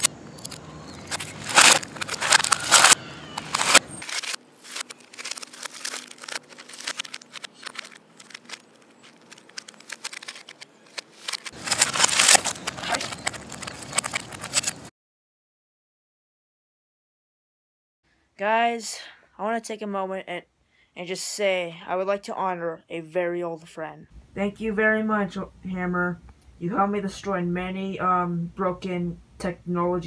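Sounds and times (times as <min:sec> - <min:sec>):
plastic and metal cracking: 0:00.0 - 0:14.9
pieces scattering on asphalt: 0:00.4 - 0:10.6, 0:11.3 - 0:14.9.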